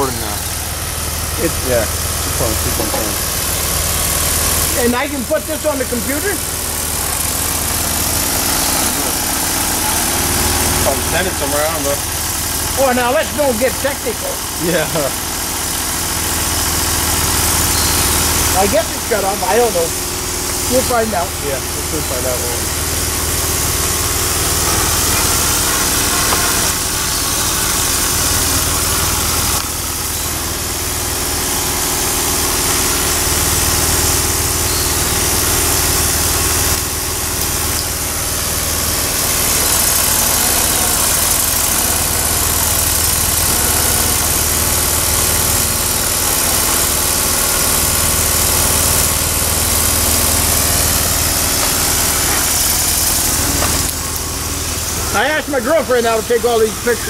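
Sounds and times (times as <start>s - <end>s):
small engine running: 0.0s - 57.0s
strong steady hiss: 12.8s - 15.2s, 49.7s - 57.0s.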